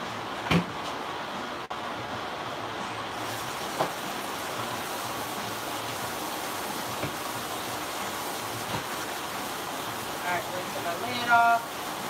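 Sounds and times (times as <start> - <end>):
faucet water running: 3.1 - 12.0.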